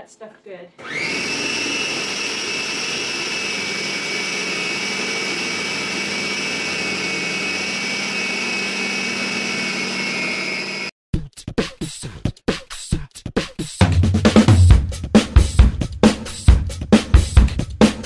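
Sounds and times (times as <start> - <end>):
food processor motor whining: 0.8 - 10.9.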